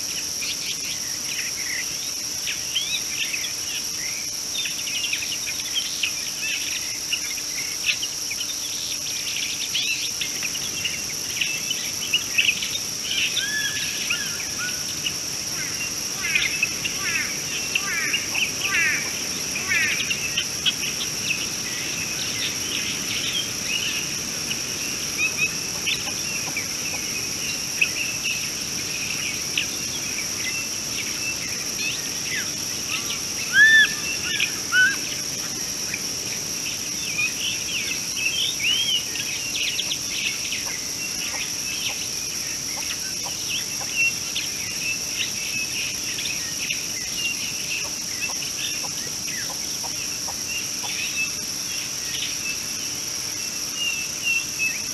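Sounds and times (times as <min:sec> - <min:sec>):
high-pitched insect drone: 0:00.0 - 0:54.9
lower bird calls: 0:22.2 - 0:36.0.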